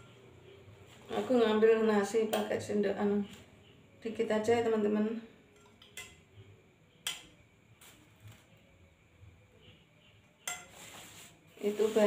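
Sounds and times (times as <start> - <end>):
spoon clicking against plate: 5.6 - 6.2, 7.0 - 7.3.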